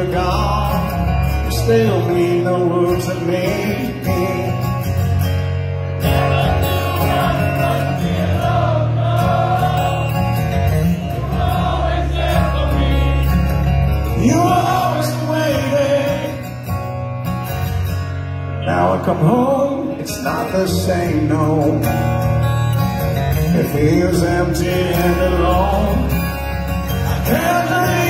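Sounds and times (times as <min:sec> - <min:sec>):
acoustic guitar: 0:00.0 - 0:28.0
sustained bass notes: 0:00.0 - 0:28.0
wordless singing: 0:06.1 - 0:10.4.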